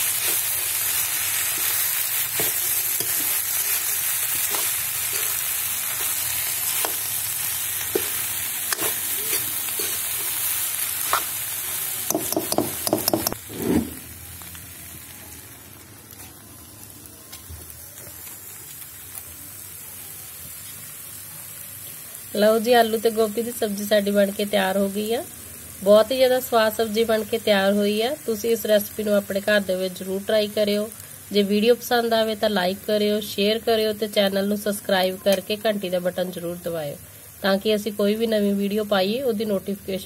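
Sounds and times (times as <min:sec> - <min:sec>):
vegetables sizzling in a pan: 0:00.0 - 0:40.0
spoon scraping metal pan: 0:08.0 - 0:10.4.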